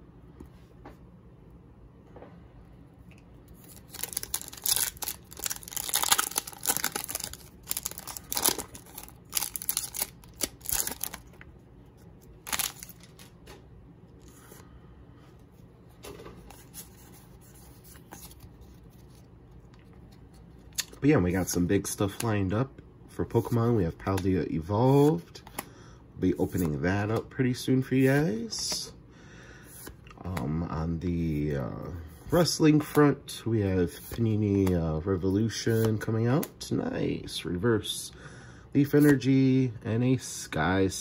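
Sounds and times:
cards rustling: 0:03.4 - 0:13.6, 0:15.9 - 0:22.4, 0:26.3 - 0:28.9
foil wrapper tearing: 0:03.6 - 0:11.3, 0:12.4 - 0:13.3.

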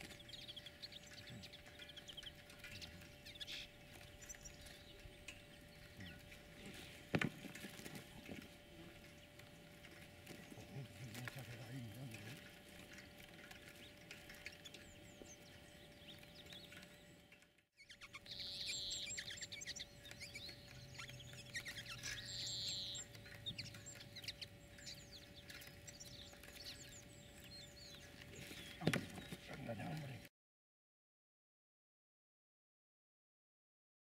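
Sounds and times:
finches chirping: 0:00.0 - 0:30.2
buzzy bird trills: 0:00.0 - 0:30.3
faint steady hum: 0:00.0 - 0:30.3.

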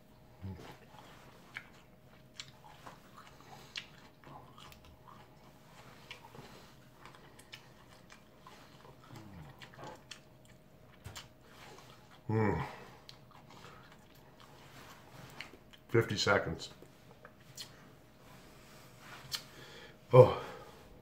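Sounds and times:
man chewing: 0:00.1 - 0:15.9, 0:16.8 - 0:19.8.

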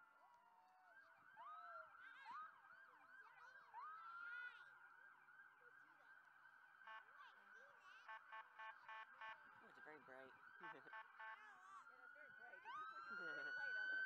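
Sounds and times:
faint fire engine sirens wailing: 0:00.0 - 0:14.0
siren yelp sweeps: 0:00.7 - 0:14.0.

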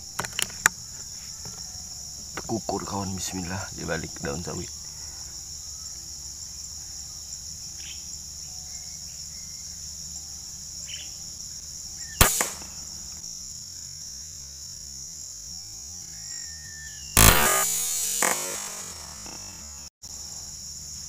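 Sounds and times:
insects chirring: 0:00.0 - 0:21.0
air rifle shot: 0:12.2 - 0:12.9, 0:17.2 - 0:19.5.

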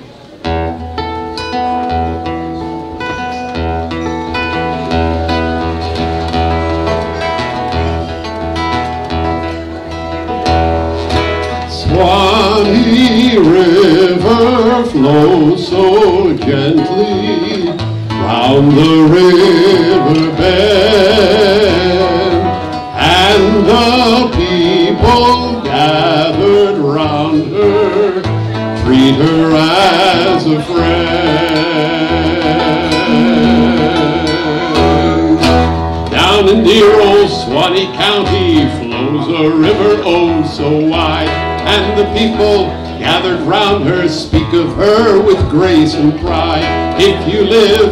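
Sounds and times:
acoustic guitar: 0:00.0 - 0:47.9
man singing: 0:11.2 - 0:47.9.

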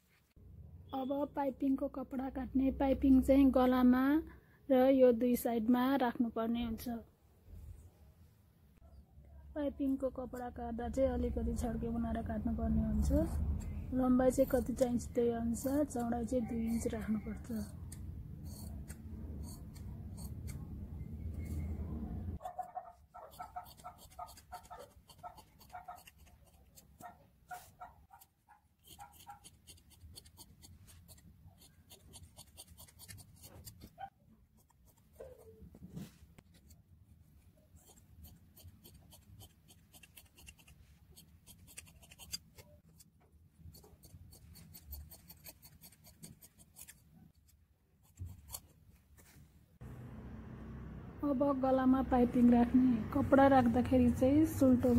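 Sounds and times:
scissors snipping through cloth: 0:14.4 - 0:20.7, 0:23.3 - 0:27.2, 0:28.1 - 0:33.9, 0:37.8 - 0:43.1, 0:43.7 - 0:48.7.

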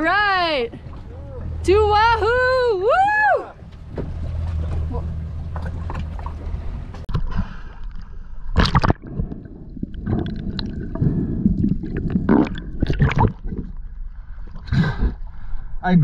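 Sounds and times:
sea water sloshing and splashing: 0:03.5 - 0:15.6
water gurgling: 0:08.5 - 0:14.1.

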